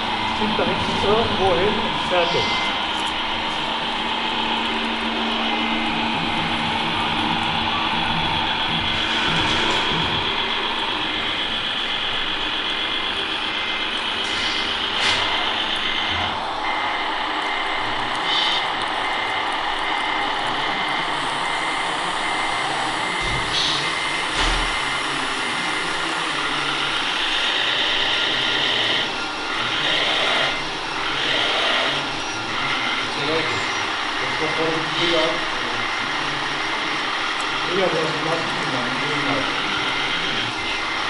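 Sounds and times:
hydraulic whine: 0.0 - 41.0
toy truck engine drone: 10.3 - 41.0.

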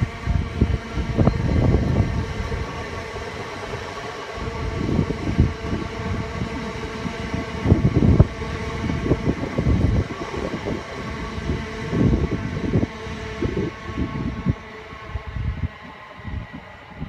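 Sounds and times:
electric train running: 0.0 - 17.0
wind buffeting microphone: 0.0 - 17.0.

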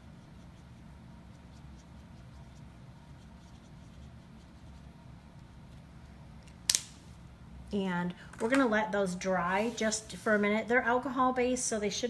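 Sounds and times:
marker tip scratching: 0.1 - 4.9.

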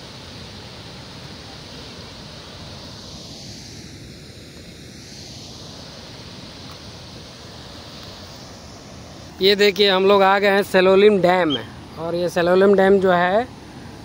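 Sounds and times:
water rushing down spillway: 0.0 - 14.0.

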